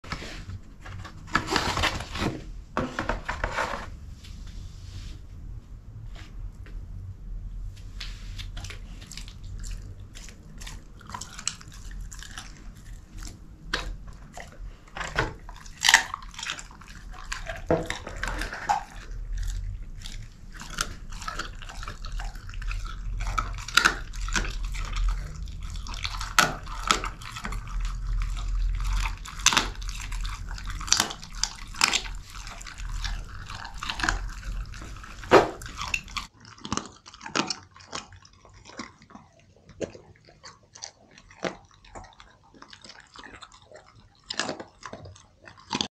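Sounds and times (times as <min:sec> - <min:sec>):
dog crunching a bone: 0:08.4 - 0:45.9.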